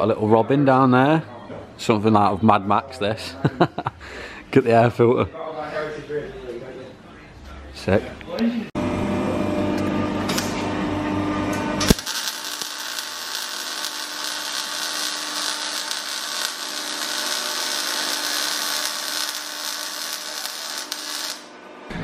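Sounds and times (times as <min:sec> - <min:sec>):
welder arc crackling and hissing: 0:10.2 - 0:10.6, 0:11.5 - 0:21.7.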